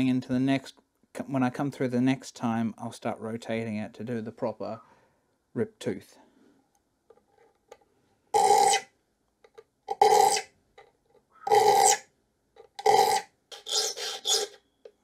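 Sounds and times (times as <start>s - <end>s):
file rasping on saw teeth: 12.9s - 14.6s.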